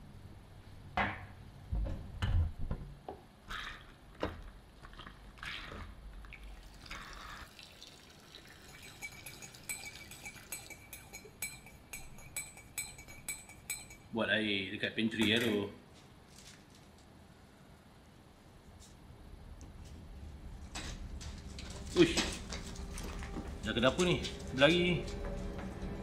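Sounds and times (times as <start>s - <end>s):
liquid pouring: 6.2s - 11.4s
spoon clinking in a mug: 8.4s - 14.1s.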